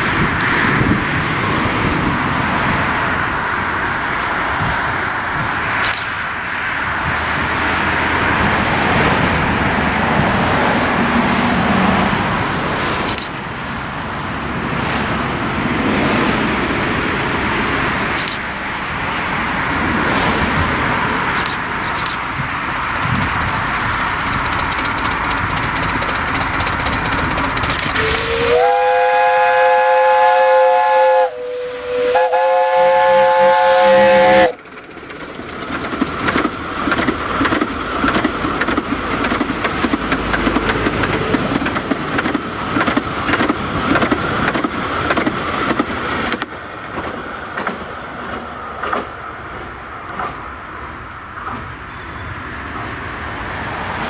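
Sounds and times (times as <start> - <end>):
steam locomotive rumble and hiss: 0.0 - 54.0
train wheels clattering: 21.0 - 31.3, 32.2 - 50.7
steam whistle blast: 28.0 - 34.6.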